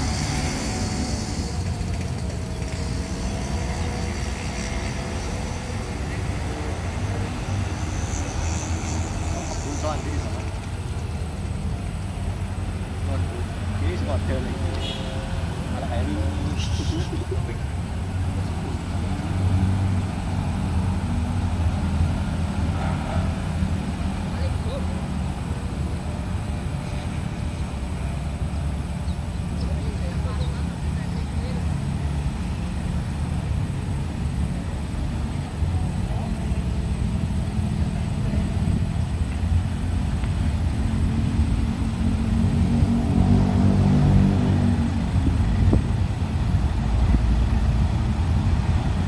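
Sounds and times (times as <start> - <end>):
distant train engine rumble: 0.0 - 49.0.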